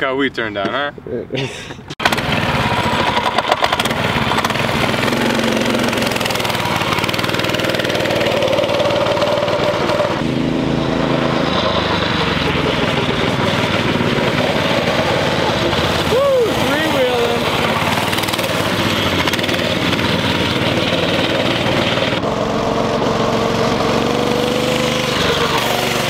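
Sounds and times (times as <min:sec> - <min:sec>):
go-kart engine running: 0:02.0 - 0:26.0.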